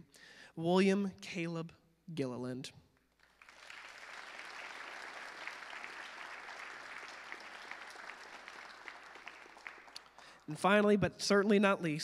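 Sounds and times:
congregation applauding: 0:03.1 - 0:10.6.

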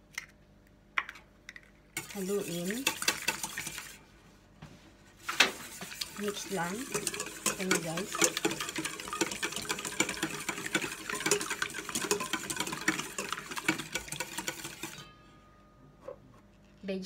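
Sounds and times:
whisk beating in metal bowl: 0:02.0 - 0:04.0, 0:05.2 - 0:15.2.

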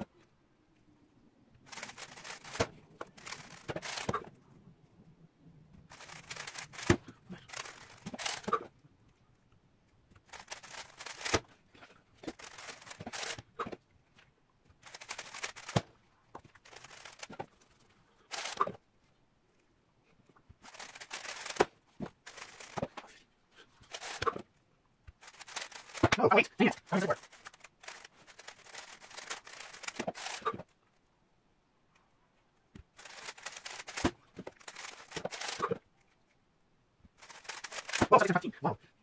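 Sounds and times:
plastic cube clicking and rattling: 0:01.7 - 0:04.3, 0:05.9 - 0:08.6, 0:10.2 - 0:11.5, 0:12.2 - 0:13.5, 0:14.8 - 0:17.5, 0:18.3 - 0:18.8, 0:20.6 - 0:23.0, 0:23.8 - 0:24.4, 0:25.1 - 0:30.7, 0:33.0 - 0:35.8, 0:37.2 - 0:38.4.

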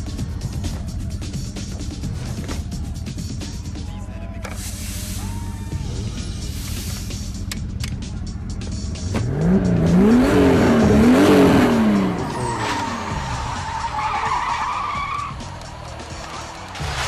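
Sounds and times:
car engine revving: 0:04.6 - 0:17.0.

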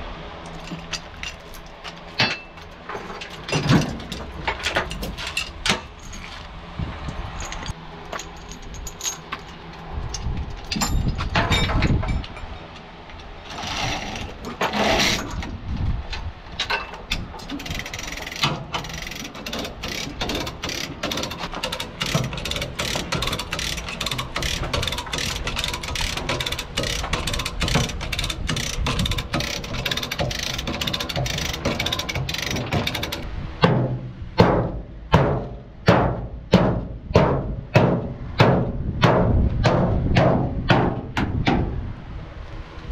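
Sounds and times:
rapid ratcheting clicks: 0:17.1 - 0:33.3
heavy knocks on metal panel: 0:33.6 - 0:41.7.

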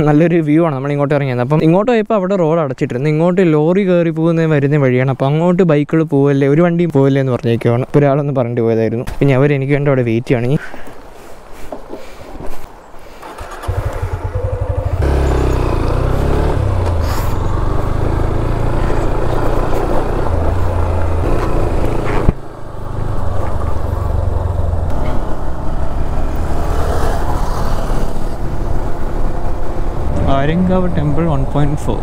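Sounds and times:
motorcycle engine running: 0:13.3 - 0:27.4.

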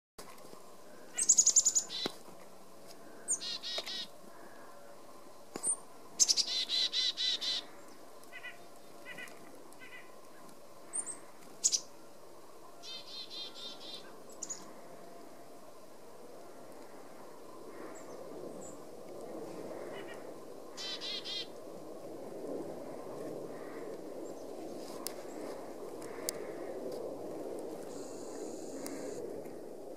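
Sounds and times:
chickadees calling: 0:01.1 - 0:02.1, 0:03.3 - 0:04.1, 0:06.2 - 0:07.7, 0:20.8 - 0:21.5.

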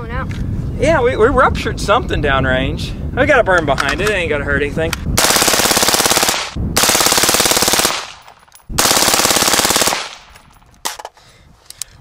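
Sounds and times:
suppressed rifle automatic fire: 0:05.2 - 0:10.3.

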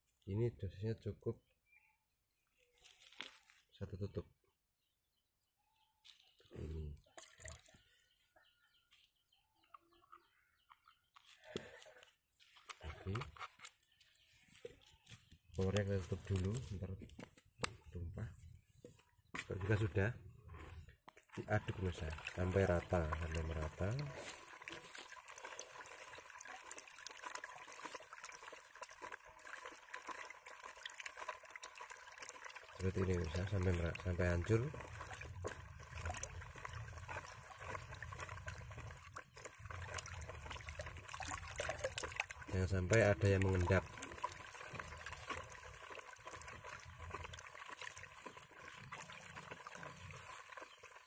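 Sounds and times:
water sloshing in bucket: 0:06.1 - 0:08.0, 0:19.4 - 0:51.0.

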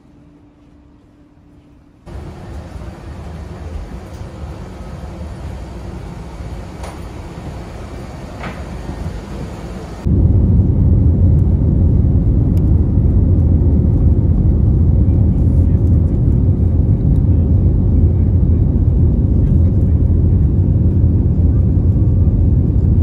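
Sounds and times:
jet engine rumble: 0:02.0 - 0:23.0
steady rushing noise: 0:02.0 - 0:23.0.

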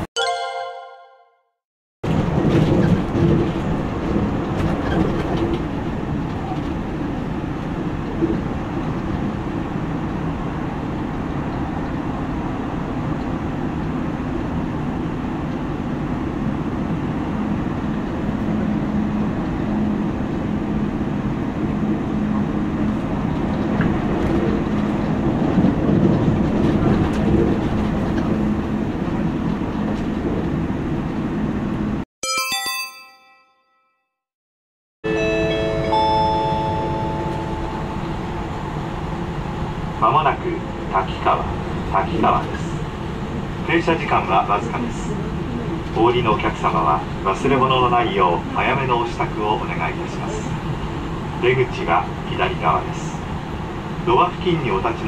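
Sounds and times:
train wheels rumbling on rails: 0:02.0 - 0:32.0
low train hum: 0:02.1 - 0:32.0, 0:35.2 - 0:55.0.

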